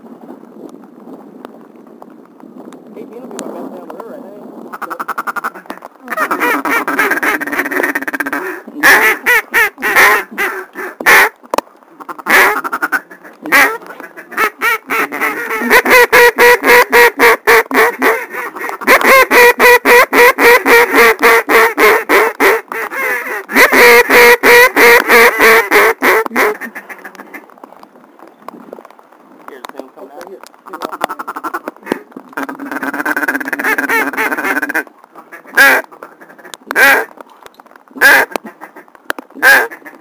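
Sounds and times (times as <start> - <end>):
duck call quacks: 4.7 - 11.4, 12.0 - 27.4, 30.6 - 37.1, 38.0 - 40.0.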